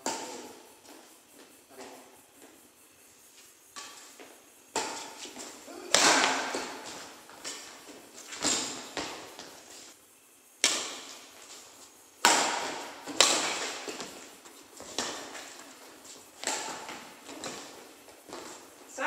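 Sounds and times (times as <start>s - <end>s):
rackets hitting shuttlecock: 0.0s - 0.6s, 4.7s - 9.5s, 10.6s - 11.4s, 12.2s - 18.8s.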